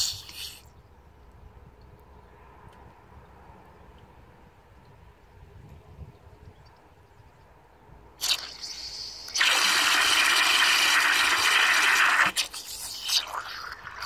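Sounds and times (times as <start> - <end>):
water hissing into toilet tank: 0.0 - 0.7, 8.2 - 14.0.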